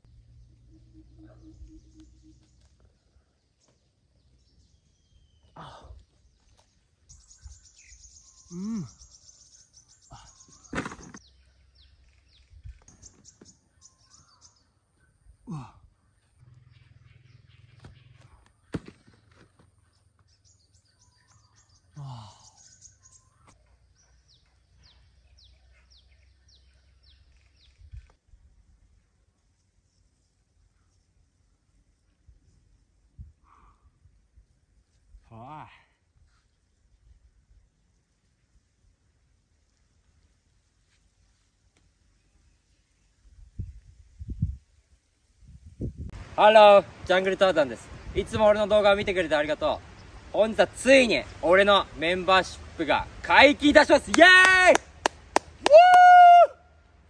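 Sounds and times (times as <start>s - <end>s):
birds chirping and trilling: 0.0s - 28.2s.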